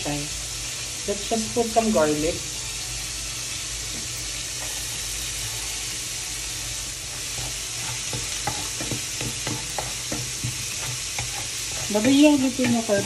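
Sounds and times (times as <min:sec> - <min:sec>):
chicken deep-frying in oil: 0:00.0 - 0:13.0
garlic sizzling in oil: 0:00.0 - 0:13.0
spatula tapping a pan: 0:07.4 - 0:13.0.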